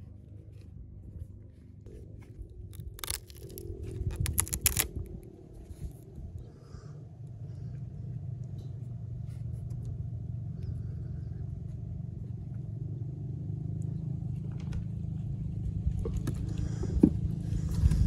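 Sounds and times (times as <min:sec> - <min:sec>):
low steady rumble: 0:00.0 - 0:18.0
vegetable stem clicks and rustles: 0:02.6 - 0:05.2.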